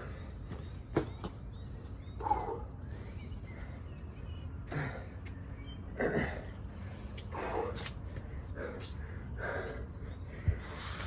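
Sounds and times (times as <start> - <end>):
man breathing hard: 0.0 - 0.5, 4.6 - 5.4, 6.1 - 11.0.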